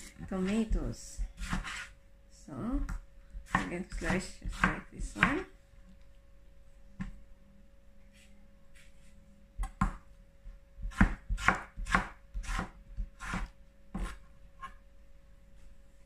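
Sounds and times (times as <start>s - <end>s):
knife slicing tomatoes: 1.4s - 1.9s, 2.8s - 5.4s, 10.8s - 14.8s.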